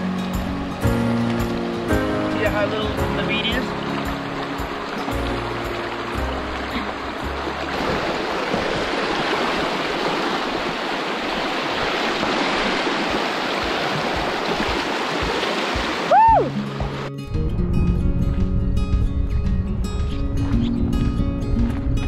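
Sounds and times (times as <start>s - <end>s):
background music: 0.0s - 8.4s
river rushing over rocks: 0.0s - 17.1s.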